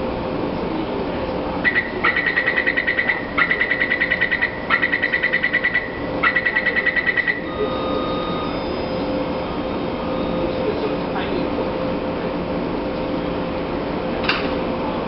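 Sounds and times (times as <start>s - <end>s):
train door warning beeps: 1.6s - 11.1s.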